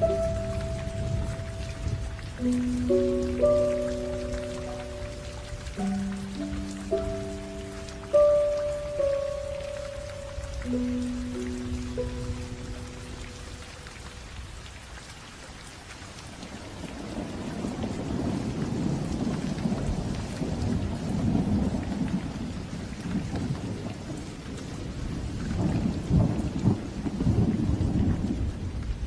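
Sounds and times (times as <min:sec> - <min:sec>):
thunder rumbling: 0:00.0 - 0:13.6, 0:16.8 - 0:24.2
steady rain: 0:00.0 - 0:29.0.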